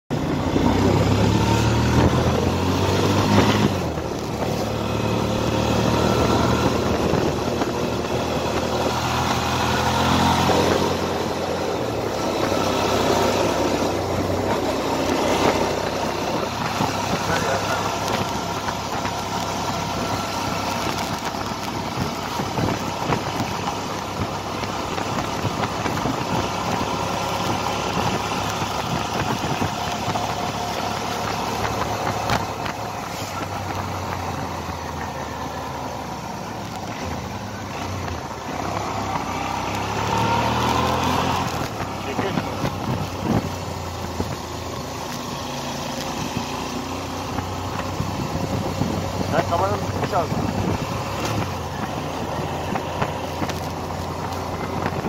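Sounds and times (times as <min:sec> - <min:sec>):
wind rushing: 0:00.1 - 0:34.5
motorcycle engine running: 0:00.1 - 0:55.0.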